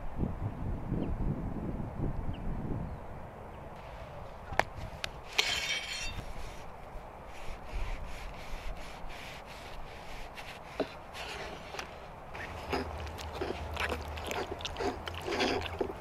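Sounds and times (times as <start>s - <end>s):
knife scraping burnt bread: 8.0s - 16.0s.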